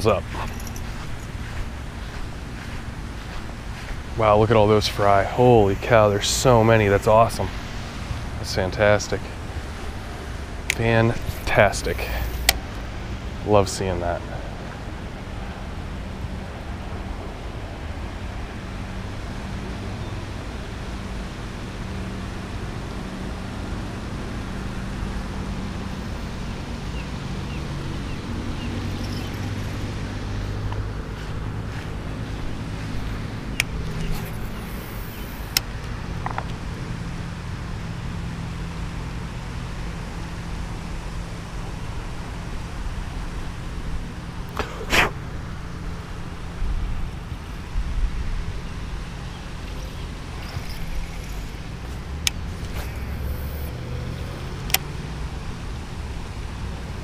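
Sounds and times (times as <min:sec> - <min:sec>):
motor humming: 0:28.0 - 0:35.6, 0:49.0 - 0:55.3
short loud scrape: 0:44.6 - 0:45.2.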